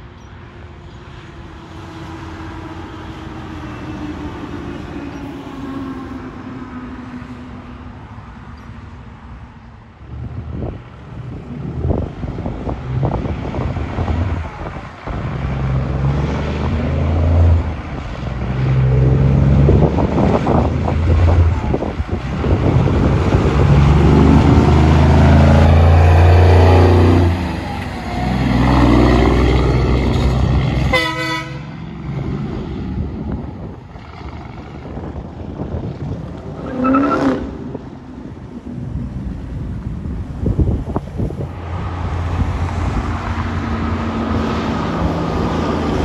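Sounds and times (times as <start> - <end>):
diesel truck accelerating through gears: 0.0 - 46.0
truck horn blast: 30.2 - 31.9.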